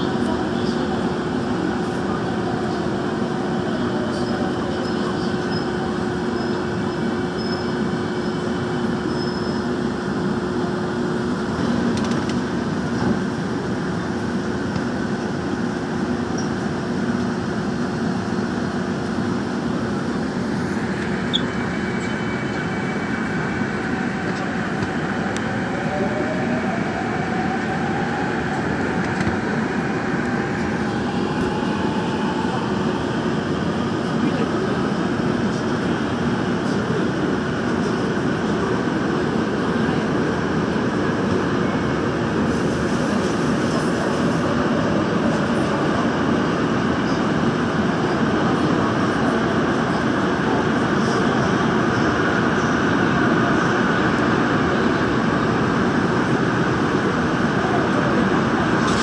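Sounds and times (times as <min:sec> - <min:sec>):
constant hum: 0:00.0 - 0:59.0
train wheels rumbling on rail: 0:00.0 - 0:59.0
rising whine: 0:19.7 - 0:34.2.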